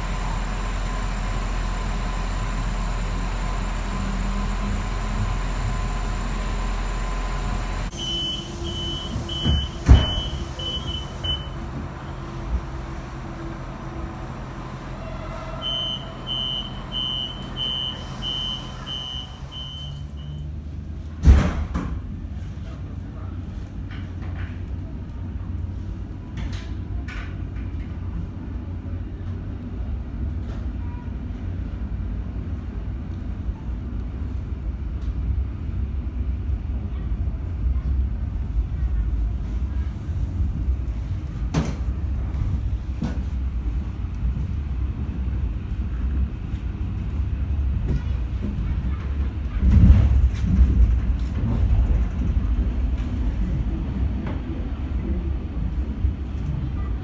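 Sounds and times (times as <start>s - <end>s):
train low hum: 0.0s - 57.0s
high warning beeps: 7.9s - 11.6s, 15.6s - 20.4s
sliding doors shutting thump: 9.0s - 11.4s.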